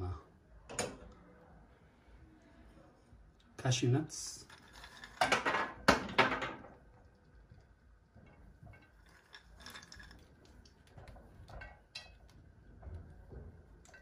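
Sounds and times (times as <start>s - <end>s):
nuts clicking on glass plate: 8.7s - 12.4s.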